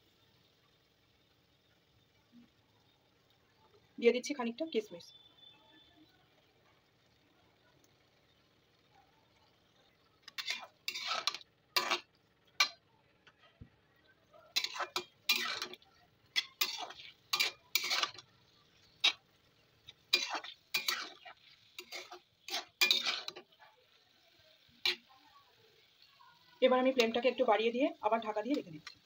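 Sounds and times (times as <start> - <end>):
metal spatula scraping a metal pan: 10.3 - 12.8, 14.5 - 23.5, 24.8 - 25.1.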